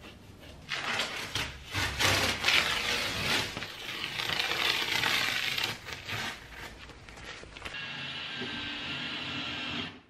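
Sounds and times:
tape peeling off a wall: 0.4s - 7.8s.

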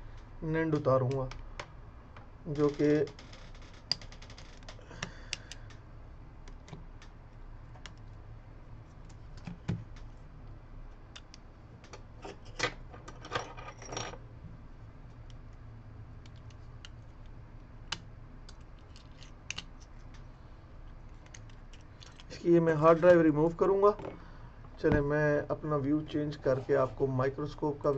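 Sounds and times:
low steady hum: 0.0s - 27.9s
small clicks of tools: 4.9s - 5.8s.

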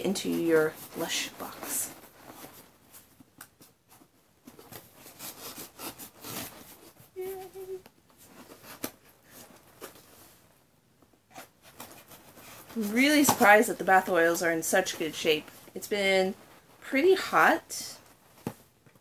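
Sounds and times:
cardboard rustling: 0.0s - 10.5s, 11.3s - 17.4s
knife scraping cardboard: 5.0s - 6.9s.

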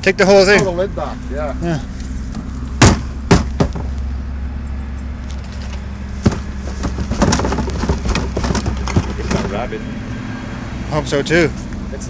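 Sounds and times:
low engine hum: 0.0s - 12.0s
plastic bin lid knocking: 2.8s - 3.9s, 6.2s - 9.6s
rustling and scratching in garbage: 5.2s - 9.8s.

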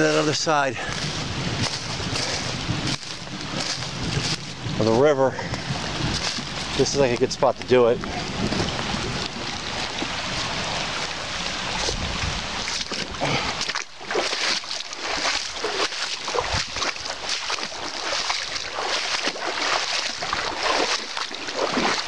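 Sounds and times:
water splashing around legs: 0.0s - 5.0s, 5.6s - 22.0s
river current rushing: 0.0s - 22.0s.

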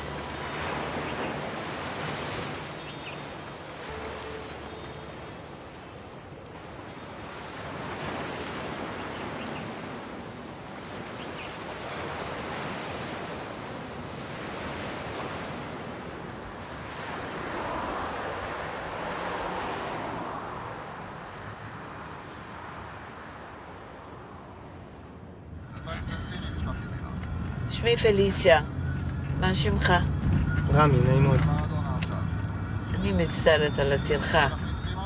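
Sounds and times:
waves breaking on pebble shore: 0.0s - 6.0s, 6.6s - 20.2s.

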